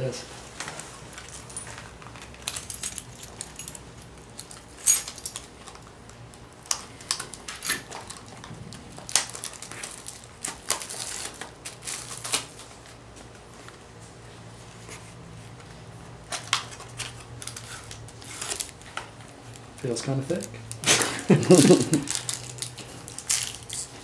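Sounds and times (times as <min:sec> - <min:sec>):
plastic pack crinkling: 0:06.6 - 0:12.8, 0:16.4 - 0:23.9.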